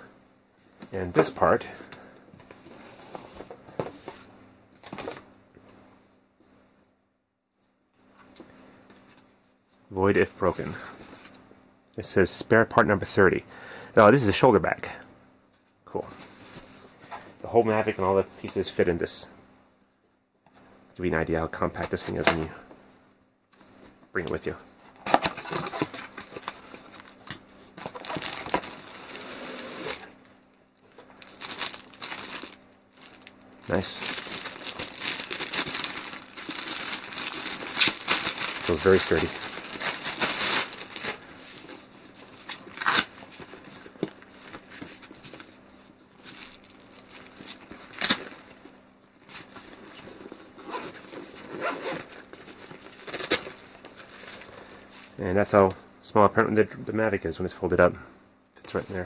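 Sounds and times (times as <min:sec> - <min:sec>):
cardboard rustling: 0:25.0 - 0:30.2, 0:30.9 - 0:45.6
plastic wrapping crinkling: 0:25.2 - 0:45.5, 0:46.2 - 0:54.6
zipper rasps: 0:50.6 - 0:52.1.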